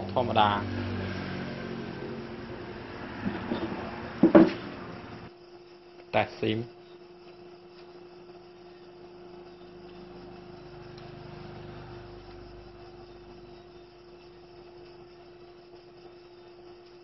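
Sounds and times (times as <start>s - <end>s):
steady hum: 0.0s - 17.0s.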